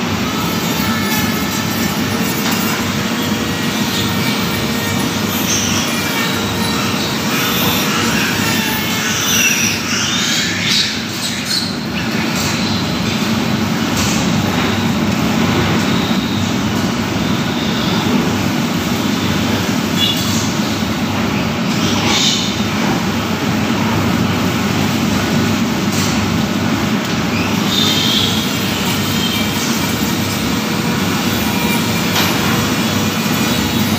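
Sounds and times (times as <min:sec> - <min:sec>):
loud pig barn din: 0:00.0 - 0:33.9
piglet squealing: 0:00.4 - 0:12.4.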